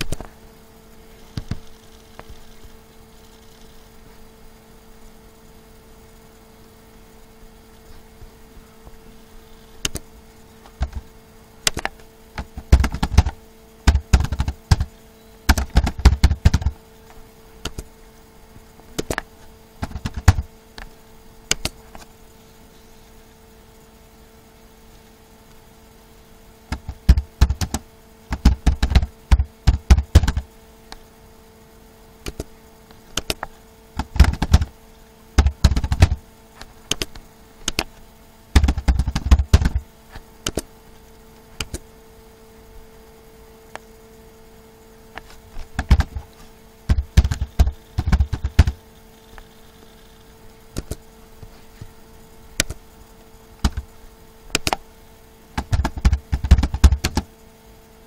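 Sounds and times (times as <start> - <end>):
faint steady hum: 0.0 - 58.0
keyboard typing: 11.7 - 14.9, 15.5 - 16.8, 19.8 - 20.5, 26.7 - 30.5, 32.3 - 32.5, 33.2 - 34.7, 35.4 - 36.2, 38.6 - 39.8, 45.7 - 46.2, 46.9 - 48.8, 55.6 - 57.3.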